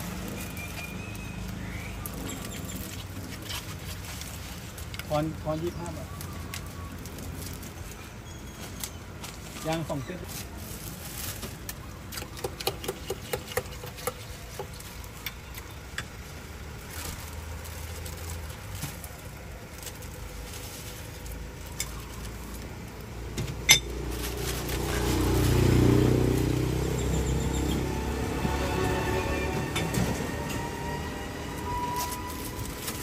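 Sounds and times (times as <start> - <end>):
plastic bag rustling: 2.7 - 12.1, 16.1 - 23.1, 24.0 - 26.0, 31.8 - 33.0
vehicle passing by: 23.8 - 33.0.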